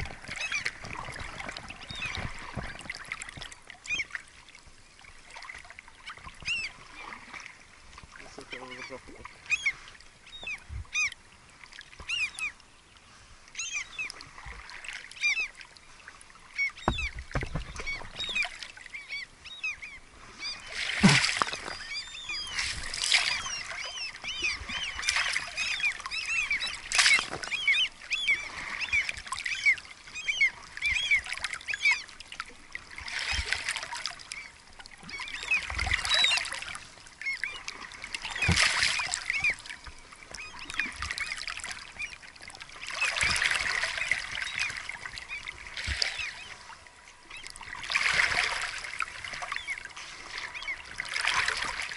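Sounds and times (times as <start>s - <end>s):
oars splashing in water: 0.0s - 51.9s.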